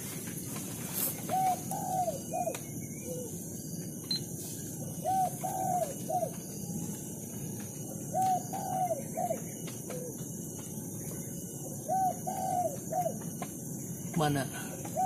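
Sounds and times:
dove cooing: 0:00.8 - 0:03.5, 0:04.7 - 0:13.6, 0:14.6 - 0:15.0.

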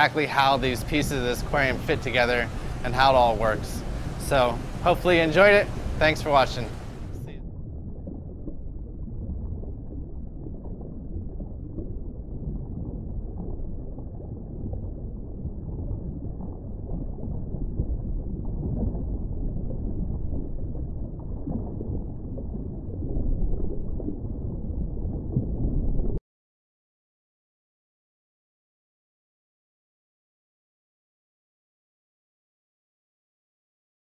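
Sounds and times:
low rumbling noise: 0:00.0 - 0:26.2.

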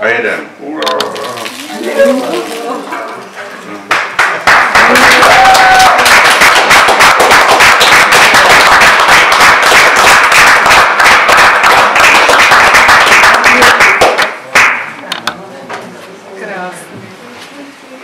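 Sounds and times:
audience applauding: 0:03.9 - 0:14.9.

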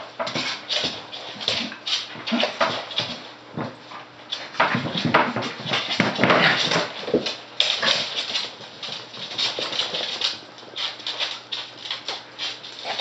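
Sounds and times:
claws scrabbling on wooden floor: 0:00.1 - 0:13.0.

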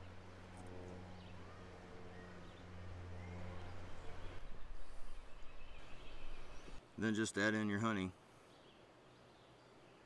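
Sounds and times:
steady low hum: 0:00.0 - 0:07.0.

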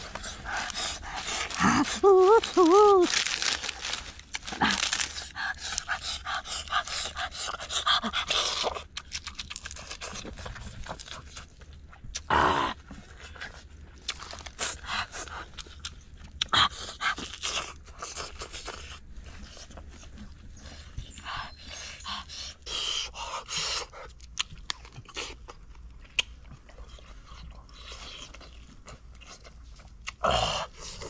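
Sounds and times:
heavy panting breaths: 0:00.0 - 0:02.4, 0:20.5 - 0:24.2
man chewing and crunching: 0:00.0 - 0:31.0.

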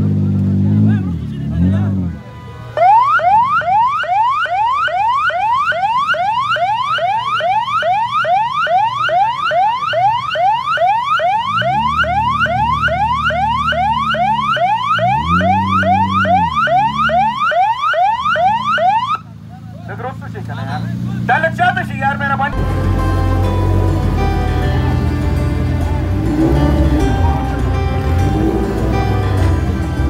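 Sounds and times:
electronic siren whooping: 0:02.7 - 0:19.2
low engine note: 0:07.8 - 0:30.0.

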